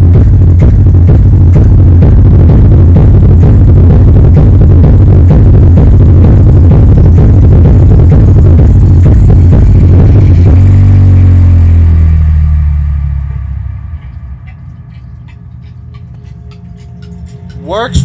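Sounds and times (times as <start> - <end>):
electronic dance music with heavy bass: 0.0 - 13.9, 17.6 - 18.0.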